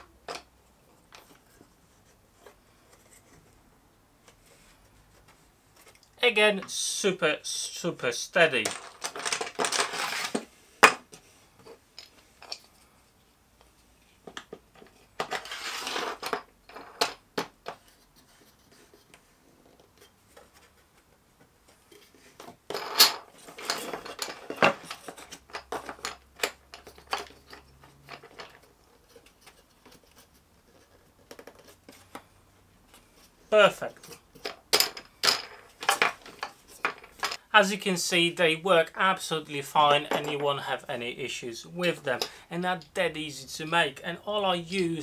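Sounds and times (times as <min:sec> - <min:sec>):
clicks and knocks of wood and metal: 0:08.6 - 0:12.7, 0:13.6 - 0:32.3, 0:34.0 - 0:37.4.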